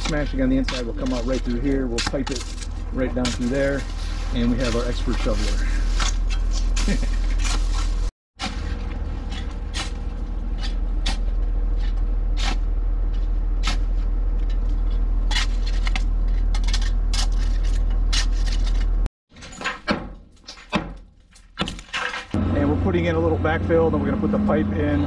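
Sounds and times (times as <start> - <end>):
shovel scraping into soil: 0.0 - 14.6
steady low rumble: 0.0 - 19.1.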